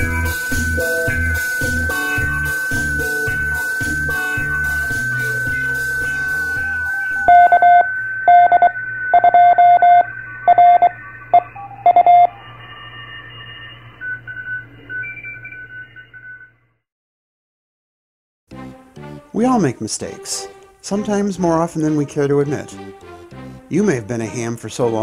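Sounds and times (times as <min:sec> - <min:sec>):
intro music: 0:00.0 - 0:15.2, 0:18.5 - 0:24.5
steady high whistle: 0:00.0 - 0:15.6
morse code tones: 0:00.0 - 0:16.6.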